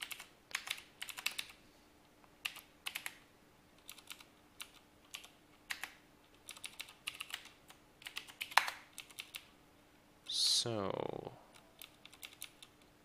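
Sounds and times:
keyboard keys clicking: 0.0s - 1.6s, 3.8s - 9.4s, 11.8s - 12.8s.

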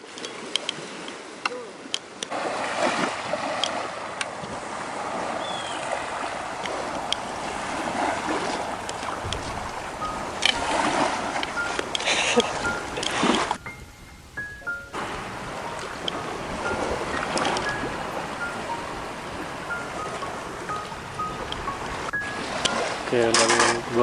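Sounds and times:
small waves washing on pebbles: 0.0s - 13.6s, 14.9s - 19.7s.

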